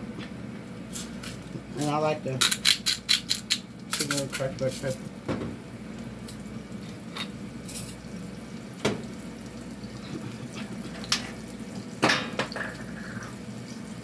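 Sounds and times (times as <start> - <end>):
onions sizzling in a pan: 3.8 - 14.0.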